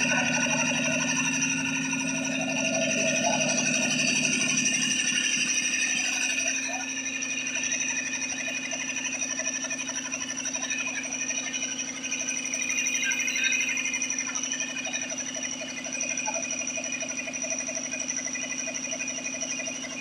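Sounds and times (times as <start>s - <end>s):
air compressor running: 0.0s - 20.0s.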